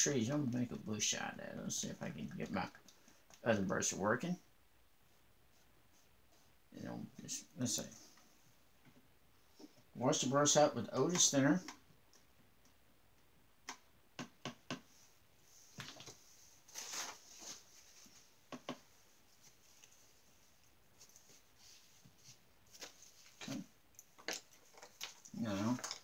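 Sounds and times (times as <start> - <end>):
faint clicks and taps: 2.2 - 3.5, 10.9 - 15.0, 18.5 - 21.4, 22.7 - 26.0
paper towel rustling: 15.0 - 23.8, 24.5 - 26.0.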